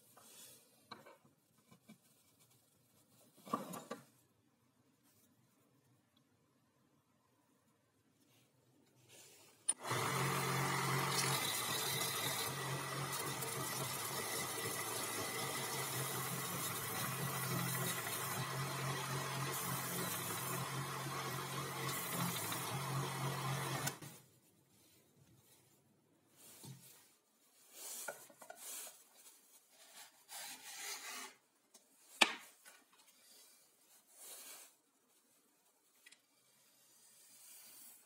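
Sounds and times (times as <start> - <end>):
belt sander running: 9.7 - 24.0.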